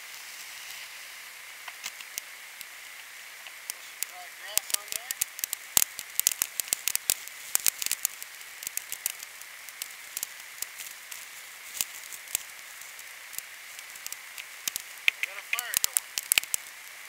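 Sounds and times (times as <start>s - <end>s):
crackling and popping: 0.0s - 17.0s.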